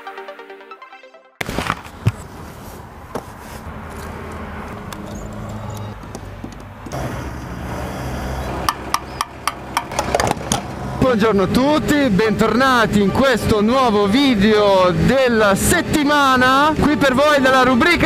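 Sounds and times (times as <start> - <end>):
low engine-like hum: 3.6 - 15.0.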